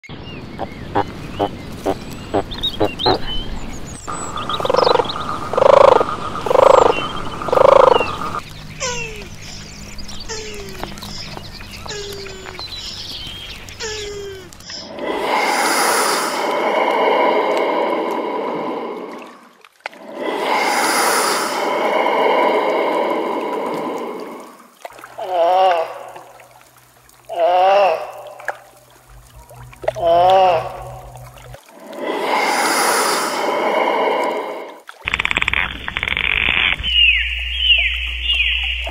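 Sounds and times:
bird chirps: 0.0 - 14.9, 36.3 - 38.9
pulsing animal calls: 4.1 - 19.4
diver breathing through regulator: 14.9 - 24.8, 31.7 - 34.8.

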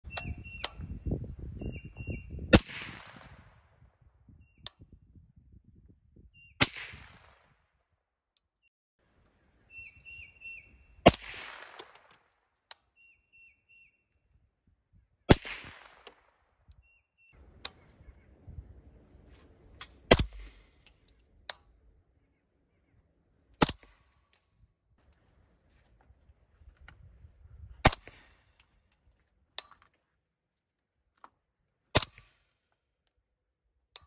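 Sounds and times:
birds chirping: 0.0 - 2.5, 9.4 - 11.1, 12.8 - 14.4, 16.8 - 19.3, 21.7 - 23.5
suppressed rifle shots: 2.5 - 3.5, 11.0 - 12.2, 15.3 - 16.2.

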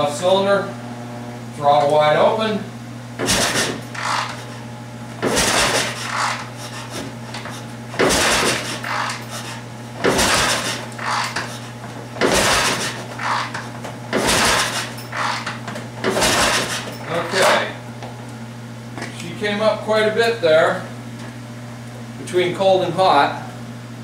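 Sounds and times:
motorcycle kick-starter cranking: 3.2 - 4.6, 5.2 - 11.6, 12.2 - 17.6.

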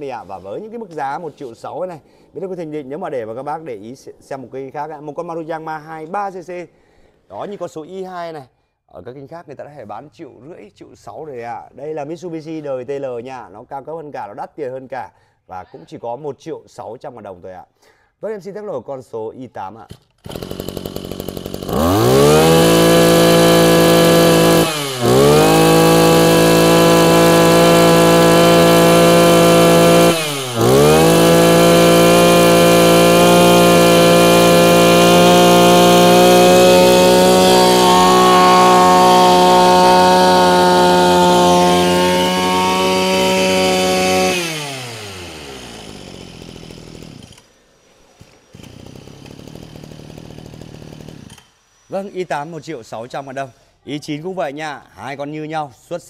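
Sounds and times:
brush cutter engine revving: 20.2 - 52.3.

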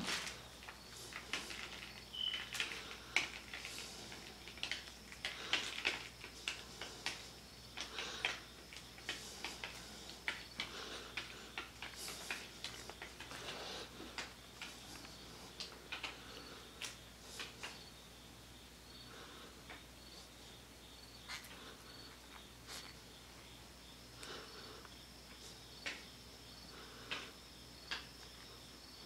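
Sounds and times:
sticky clicks of foam brush: 0.0 - 17.9.

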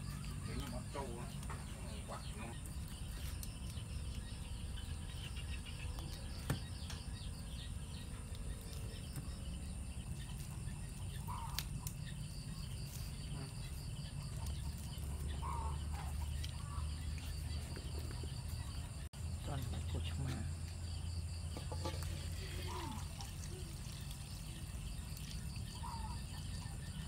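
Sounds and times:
night insects chirring: 0.0 - 27.0.

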